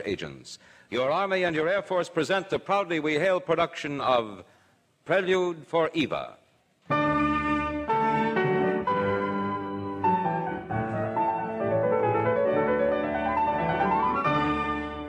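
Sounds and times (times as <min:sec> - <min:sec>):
classical piano music: 0:07.1 - 0:15.0.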